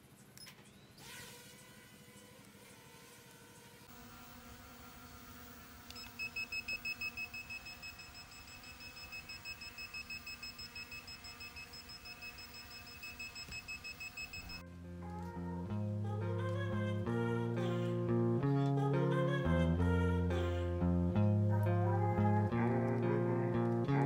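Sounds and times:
rapid high electronic beeping: 6.3 - 14.6
background music: 14.6 - 24.0.

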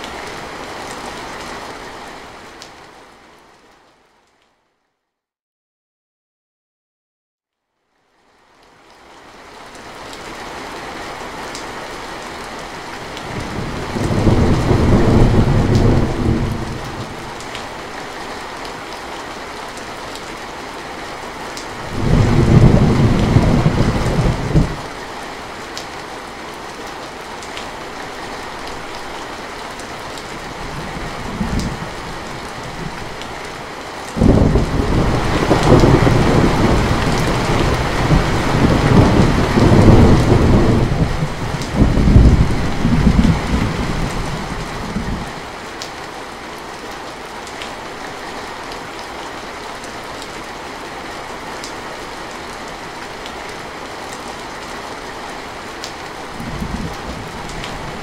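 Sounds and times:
heavy rain on a metal roof: 0.0 - 4.5, 8.0 - 58.0
rolling thunder: 13.3 - 17.2, 21.9 - 24.8, 34.2 - 45.3, 56.4 - 58.0.

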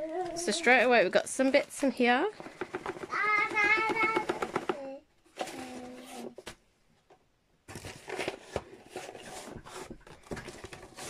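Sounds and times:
packaging rustling and scraping: 5.3 - 6.5, 7.7 - 11.0.

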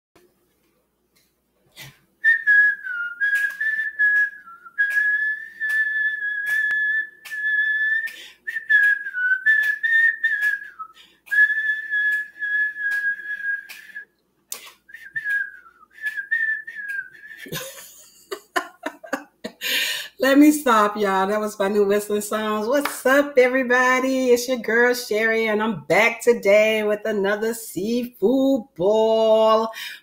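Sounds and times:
woman whistling a tune: 2.2 - 14.0, 14.9 - 17.6.

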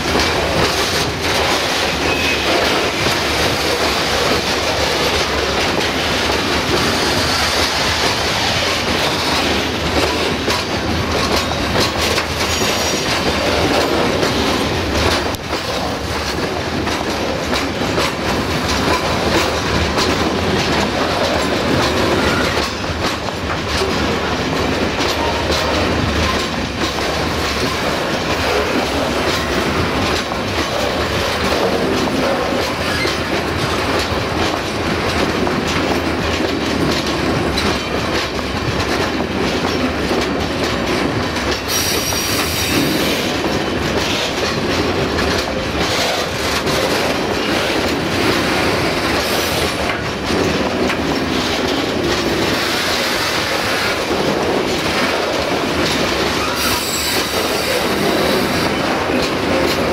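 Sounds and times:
freight train wheels clattering: 0.0 - 59.9
wheel squeal: 56.4 - 58.7.

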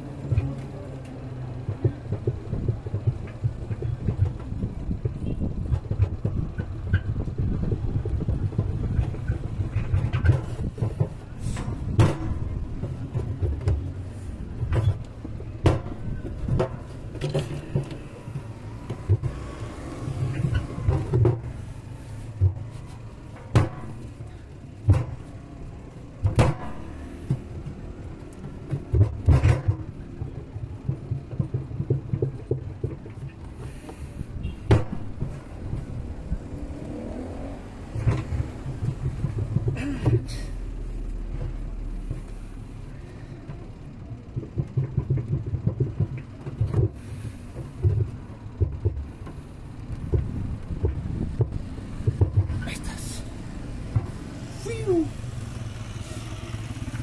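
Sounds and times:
plastic parts knocking and clattering: 1.4 - 25.4, 26.1 - 34.0, 37.9 - 40.4, 43.4 - 49.4.

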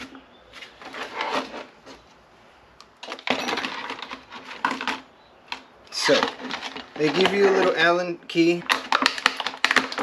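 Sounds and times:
plastic blister pack crackling: 6.0 - 10.0.

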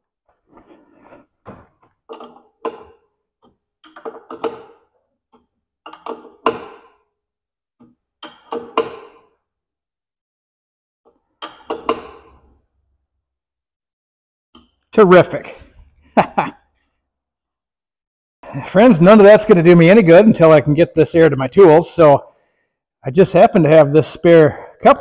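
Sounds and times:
air hose knocking and scraping: 0.2 - 7.1.

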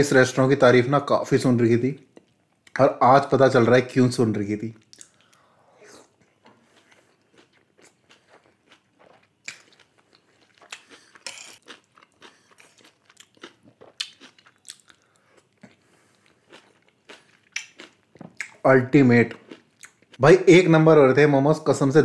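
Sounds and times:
person chewing and biting: 6.2 - 18.6, 19.3 - 20.2.

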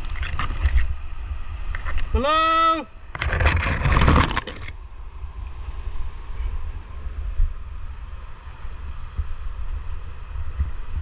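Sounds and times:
wind buffeting microphone: 2.9 - 11.0.

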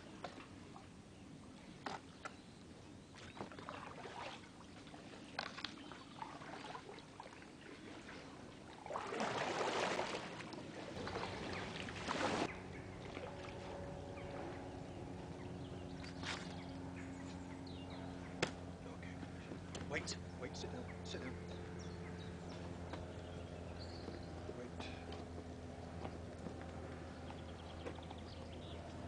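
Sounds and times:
paddle splashing water: 3.1 - 14.6.

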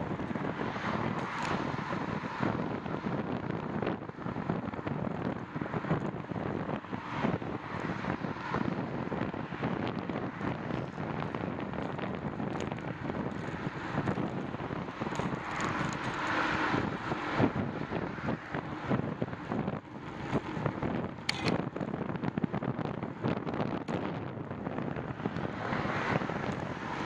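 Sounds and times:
road rumble: 0.0 - 27.0
wind buffeting microphone: 0.0 - 27.0
sharp click: 21.2 - 21.6.

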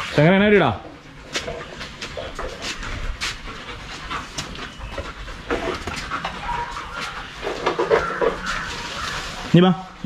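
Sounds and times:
dog panting: 1.3 - 9.1.

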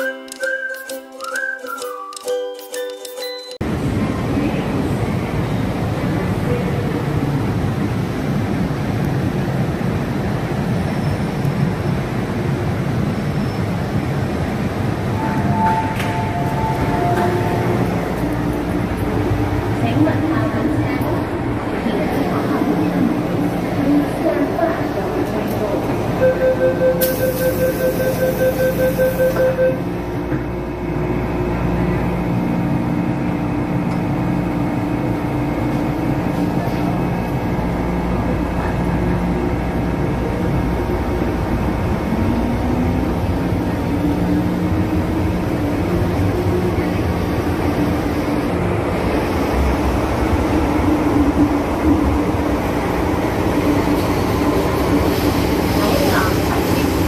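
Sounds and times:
train rumbling: 3.6 - 57.0
door-closing warning beeps: 26.2 - 29.8.

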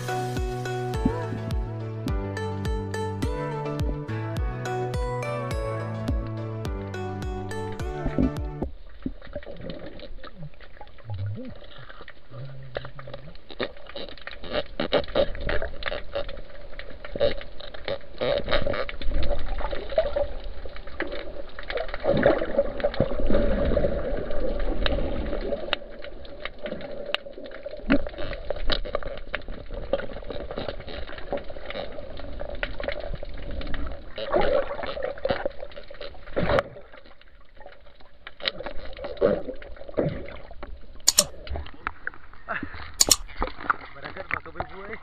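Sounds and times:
water moving and bubbling: 0.0 - 2.2, 7.6 - 45.0
underwater rumbling: 8.0 - 45.0
sharp clicks and knocks: 41.1 - 41.3, 43.0 - 43.3.

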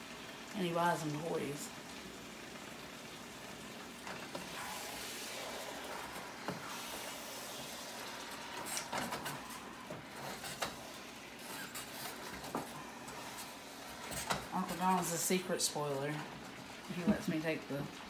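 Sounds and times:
meat sizzling in a frying pan: 0.0 - 17.0.

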